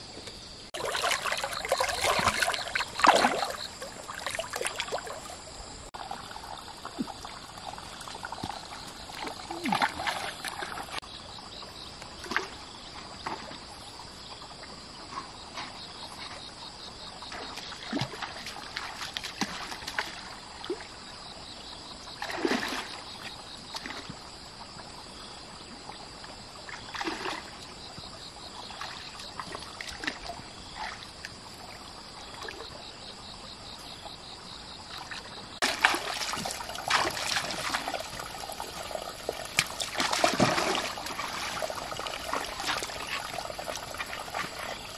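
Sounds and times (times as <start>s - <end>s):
stream water trickling: 0.3s - 44.9s
splashes from wading steps: 0.7s - 11.0s, 17.3s - 21.0s, 22.2s - 24.2s, 26.6s - 27.8s, 28.6s - 31.3s, 34.9s - 44.9s.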